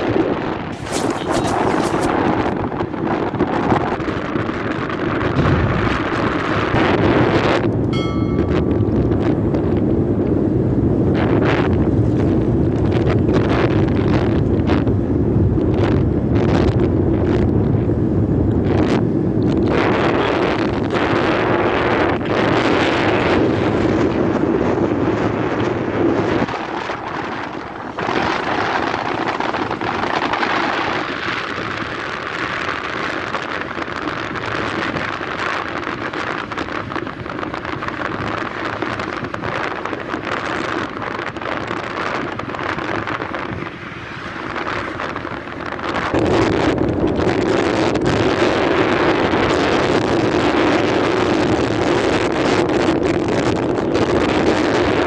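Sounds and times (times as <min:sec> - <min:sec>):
vehicle engine and road noise: 0:00.0 - 0:55.0
wind buffeting microphone: 0:00.0 - 0:55.0
low hum: 0:05.3 - 0:10.9.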